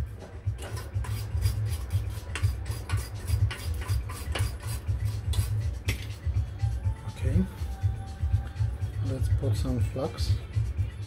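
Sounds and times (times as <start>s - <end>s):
toothbrush scrubbing: 0.7s - 5.7s.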